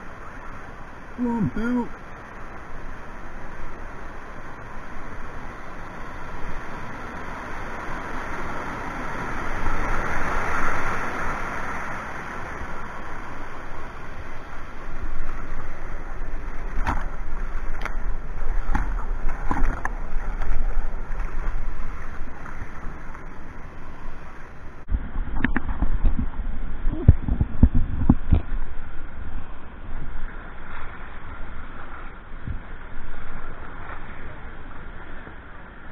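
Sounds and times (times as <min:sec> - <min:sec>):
whitewater rushing: 0:00.0 - 0:24.9
deep rumble: 0:14.4 - 0:35.2.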